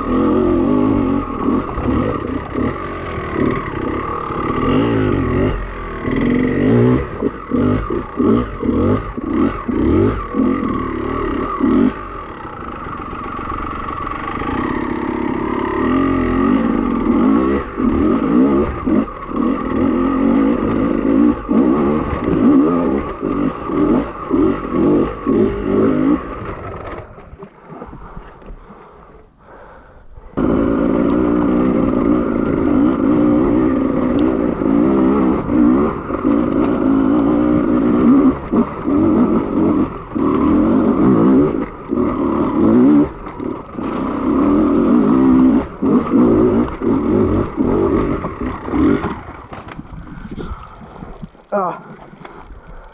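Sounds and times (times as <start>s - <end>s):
motorcycle engine revving: 0.0s - 28.1s, 30.4s - 50.7s.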